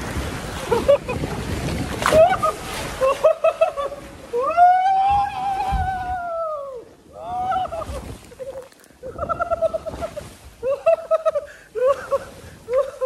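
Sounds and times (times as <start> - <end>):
high-pitched laughter: 7.4 - 13.0.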